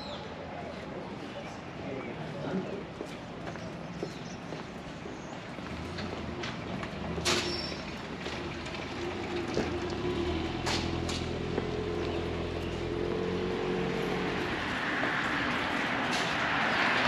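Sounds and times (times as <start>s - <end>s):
large vehicle engine running: 5.6s - 14.6s.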